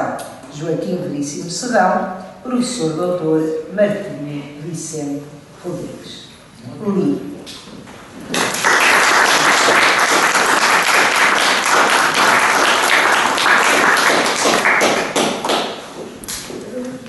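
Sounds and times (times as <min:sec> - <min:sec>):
audience applauding: 0:08.3 - 0:15.9.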